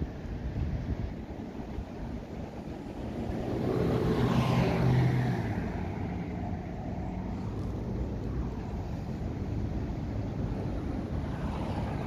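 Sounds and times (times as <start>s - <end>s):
motor vehicle driving past: 2.9s - 8.0s.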